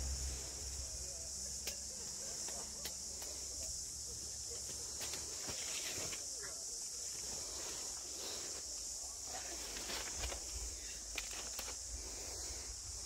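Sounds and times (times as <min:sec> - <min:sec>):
low rumble: 0:00.0 - 0:01.5
high-pitched insect drone: 0:00.0 - 0:13.0.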